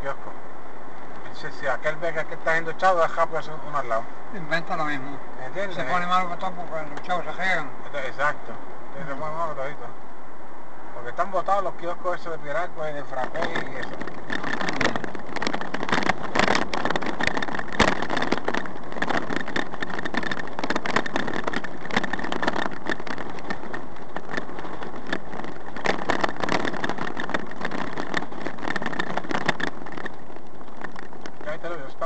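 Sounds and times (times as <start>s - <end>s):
car engine and tyre hum: 0.0s - 32.0s
small knocks and rattles: 13.1s - 31.9s.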